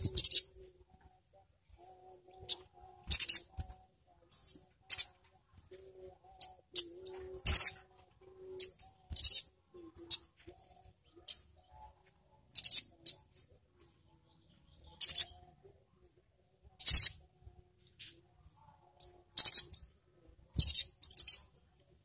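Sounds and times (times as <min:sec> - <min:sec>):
bird chirping high-pitched: 0:00.0 - 0:00.6, 0:02.3 - 0:03.7, 0:04.3 - 0:07.8, 0:08.4 - 0:11.9, 0:12.5 - 0:13.3, 0:14.3 - 0:15.6, 0:16.8 - 0:17.2, 0:19.0 - 0:19.9, 0:20.6 - 0:21.6.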